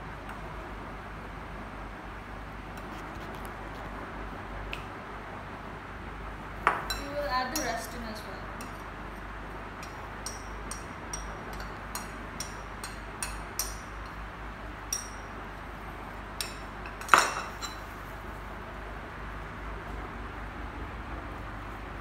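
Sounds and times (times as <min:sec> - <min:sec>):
metal utensil clinking on ceramic bowl: 0:09.8 - 0:13.8.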